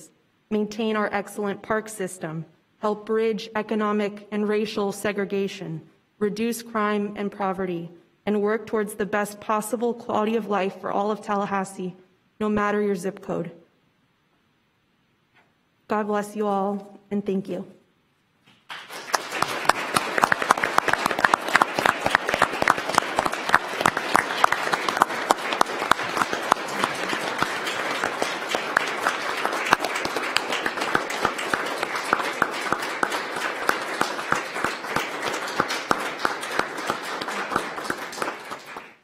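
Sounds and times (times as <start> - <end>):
audience applauding: 18.6 - 39.0.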